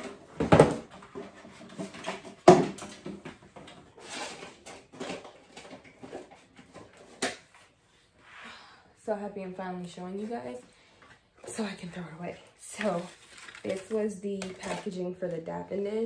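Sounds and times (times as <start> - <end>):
rustling: 12.7 - 14.8.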